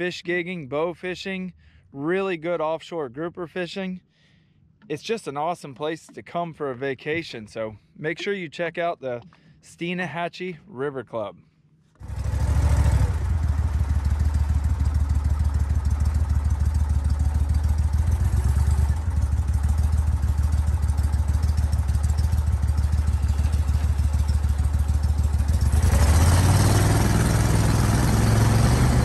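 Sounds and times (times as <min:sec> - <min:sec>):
outboard motor idling: 0:12.0 - 0:29.0.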